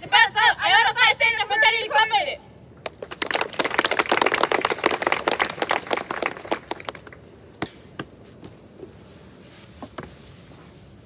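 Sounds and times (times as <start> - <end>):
audience clapping: 2.8 - 7.2.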